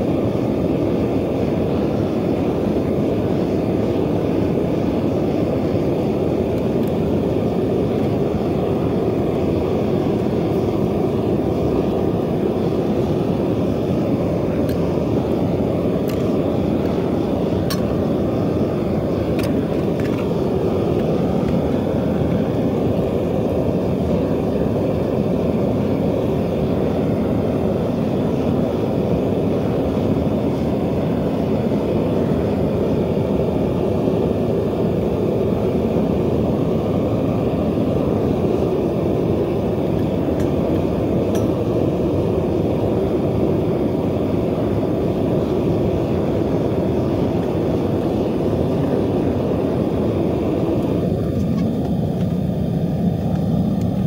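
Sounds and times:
burner roaring: 0.0s - 54.0s.

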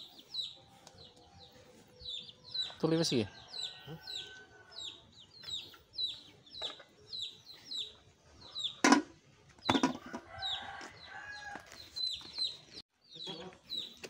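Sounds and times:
chicks peeping: 0.0s - 8.8s, 9.6s - 14.0s
lid knocking on metal pot: 8.8s - 9.1s.

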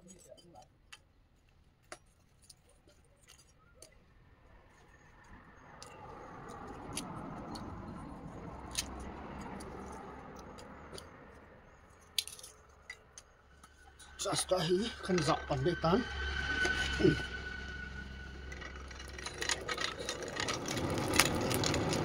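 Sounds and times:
clinks of charcoal and metal: 11.9s - 15.3s
soft rushing noise: 13.4s - 22.0s.

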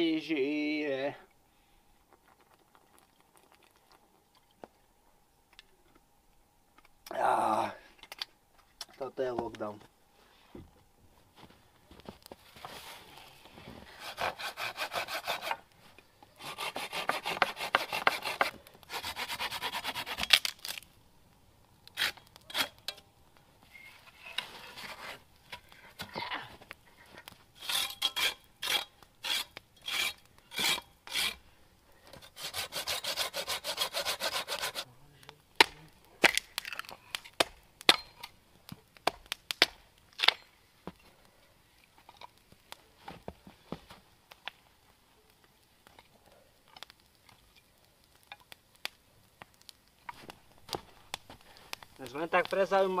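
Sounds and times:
hand saw cutting branches: 13.9s - 15.6s, 16.4s - 20.8s, 27.6s - 31.4s, 32.2s - 34.9s
hatchet chopping wood: 16.6s - 20.5s, 37.4s - 38.1s, 39.0s - 40.4s.

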